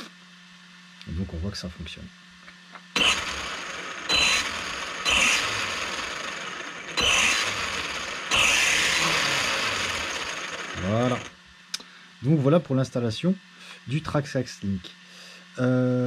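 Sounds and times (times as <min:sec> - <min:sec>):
electric motor and gears whirring: 0:02.5 - 0:12.6.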